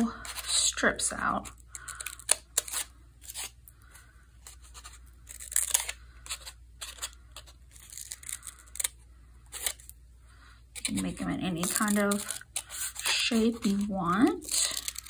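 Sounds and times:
scissors snipping paper: 10.8s - 15.0s.

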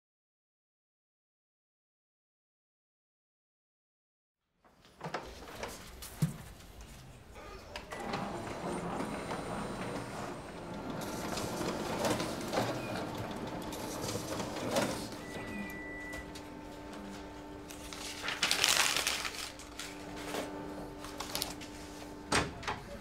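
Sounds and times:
paper feed rush: 7.4s - 23.0s
printer whirring and clicking: 7.4s - 23.0s.

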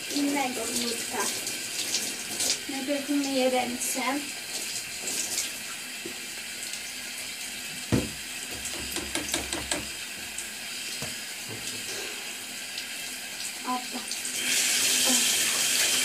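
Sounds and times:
tap water running into sink: 0.0s - 16.0s
thump: 7.9s - 8.2s.

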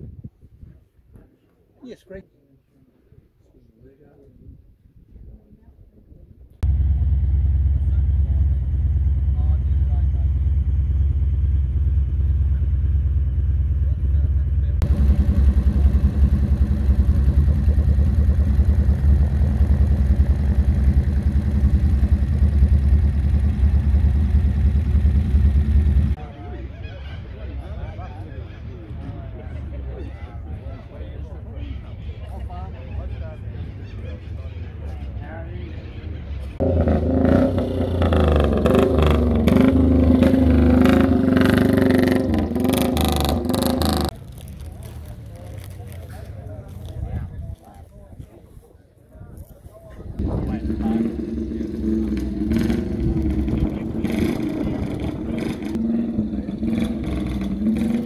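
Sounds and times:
vehicle engine idling: 6.6s - 26.3s, 50.2s - 58.0s.

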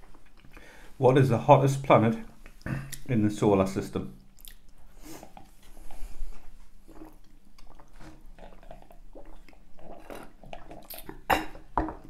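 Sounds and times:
mouth and chewing sounds: 4.2s - 12.0s.

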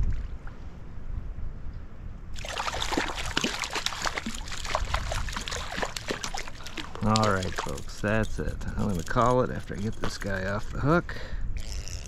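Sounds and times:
wind rumble on microphone: 0.0s - 12.0s
fish splashing in water: 2.4s - 7.9s.

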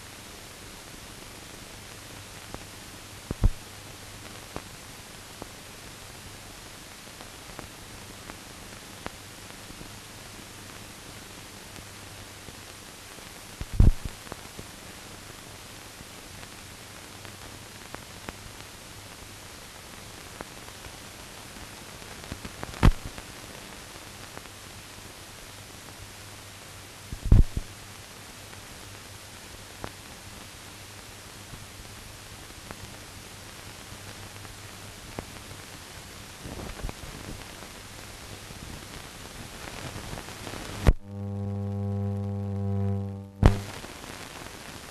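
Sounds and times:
film soundtrack hiss: 0.0s - 44.9s
faint low hum: 40.7s - 43.9s
faint clicks: 40.8s - 43.8s
loud pops: 42.4s - 44.2s.

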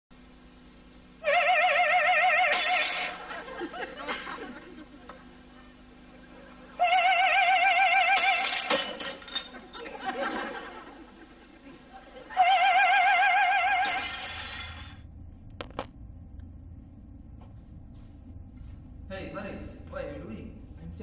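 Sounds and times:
glass shattering: 2.5s - 3.2s, 8.2s - 9.7s, 13.8s - 15.0s.

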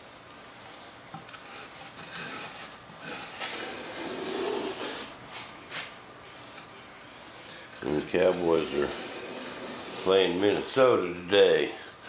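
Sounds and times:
hand plane shaving wood: 1.6s - 5.1s, 7.8s - 10.7s.

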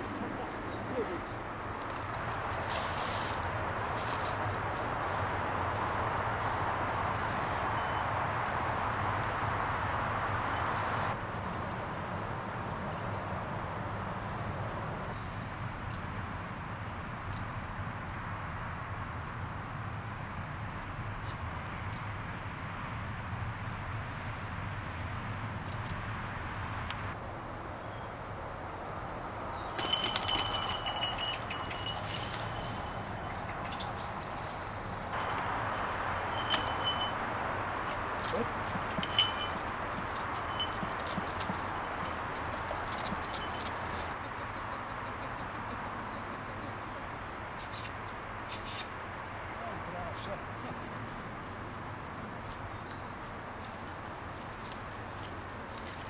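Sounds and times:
dry leaves rustling: 0.0s - 8.0s, 29.7s - 33.9s, 35.2s - 37.2s, 52.0s - 56.0s
rustling hiss of woodland air: 0.0s - 11.7s, 16.6s - 38.2s, 47.2s - 49.5s, 50.4s - 56.0s
small metal bells jingling: 7.6s - 8.3s, 29.8s - 33.7s, 35.2s - 37.4s, 38.7s - 44.1s
sharp metal clink: 29.8s - 33.4s, 35.2s - 37.2s, 38.9s - 42.1s.

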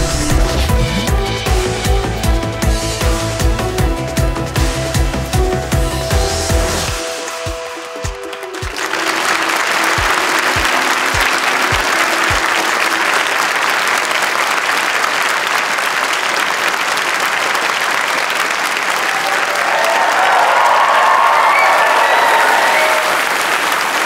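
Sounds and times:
audience clapping: 0.0s - 1.1s, 6.9s - 24.0s
held music notes: 0.0s - 13.5s.

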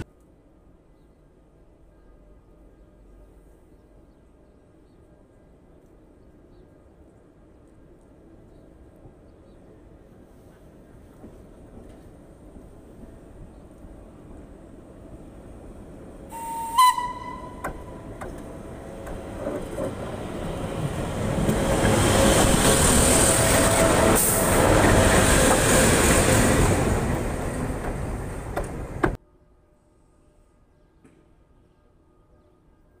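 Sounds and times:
locomotive horn blast: 16.3s - 18.1s
train wheels clattering overhead: 17.0s - 29.2s.

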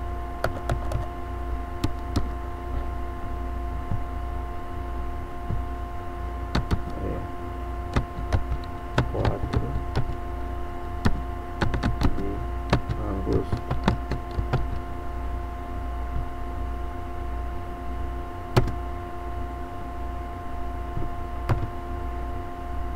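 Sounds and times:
steady two-tone hum: 0.0s - 22.9s
keyboard keystroke clicks: 0.4s - 1.1s, 6.5s - 7.0s, 7.9s - 10.2s, 11.0s - 14.8s, 18.6s - 18.8s, 21.5s - 21.7s.

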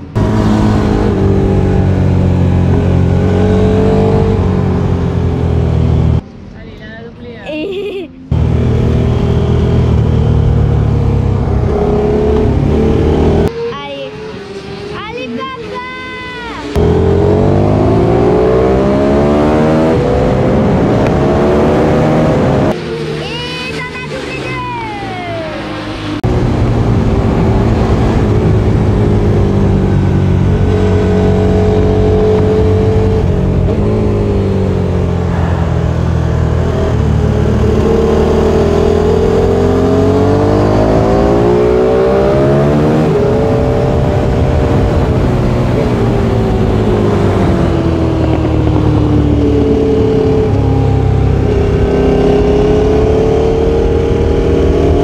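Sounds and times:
motorcycle engine revving: 0.0s - 6.2s, 8.3s - 24.6s, 25.2s - 55.0s.

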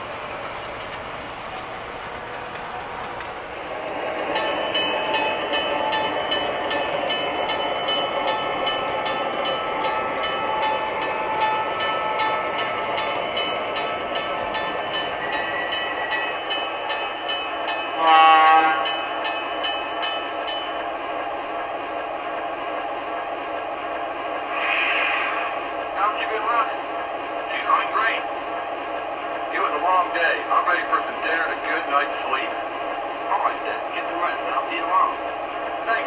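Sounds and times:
model train wheels rolling: 0.0s - 17.8s.

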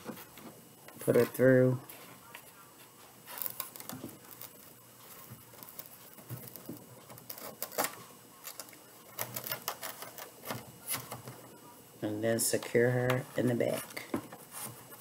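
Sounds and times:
scratchy crackling handling noise: 0.0s - 11.4s.

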